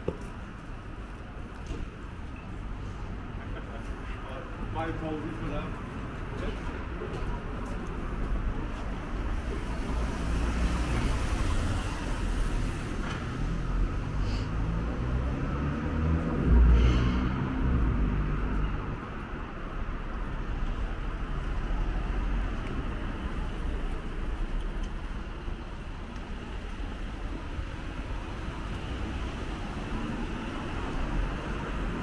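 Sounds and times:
cars passing on wet road: 9.2 - 19.4, 20.4 - 32.0.

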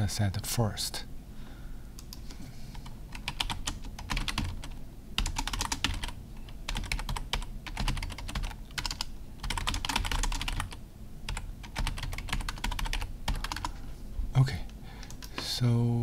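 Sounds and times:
typing on computer keyboard: 2.0 - 13.7, 15.0 - 15.5.

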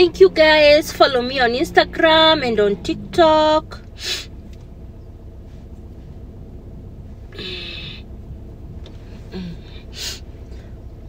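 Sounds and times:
low steady hum: 0.0 - 11.0
person exhaling: 7.3 - 8.1, 9.2 - 10.8.

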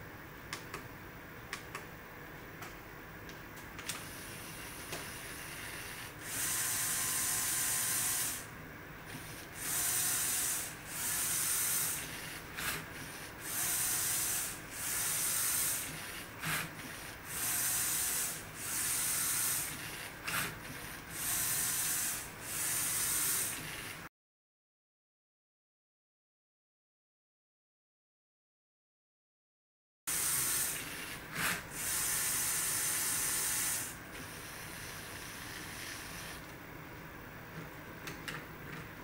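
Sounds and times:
motors and plastic gears whirring: 3.9 - 8.5, 9.1 - 24.1, 30.1 - 36.5.

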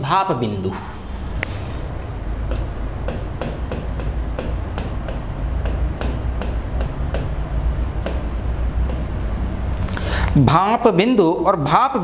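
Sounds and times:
steady low hum: 0.0 - 12.0
marker pen scratching on board: 2.4 - 9.6.

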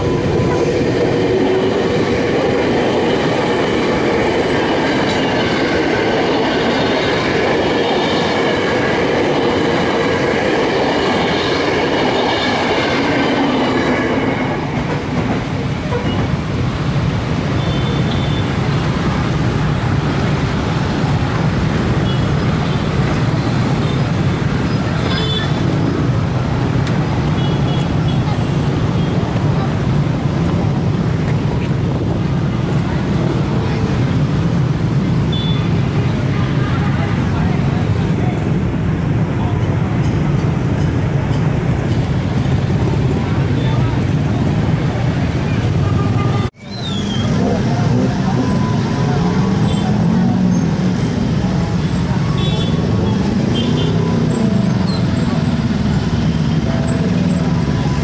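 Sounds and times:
electric train passing: 0.0 - 17.6, 47.2 - 58.0.

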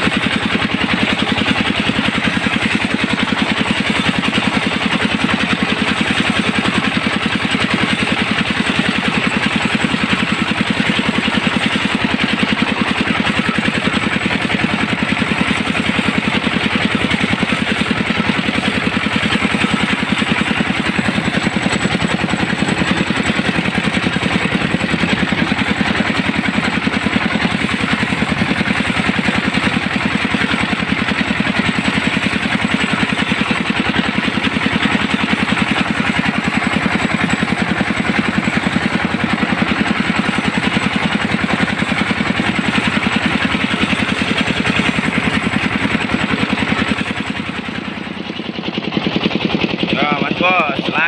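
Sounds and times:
vehicle engine running: 0.0 - 51.0.

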